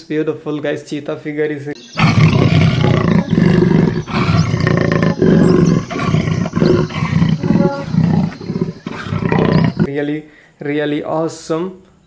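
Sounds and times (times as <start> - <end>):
big cat roaring and growling: 2.0 - 9.9.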